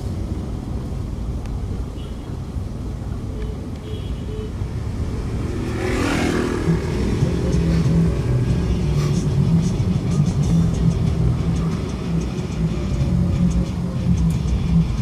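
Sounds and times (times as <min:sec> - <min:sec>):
car road noise in cabin: 0:00.0 - 0:15.0
low engine drone: 0:04.7 - 0:15.0.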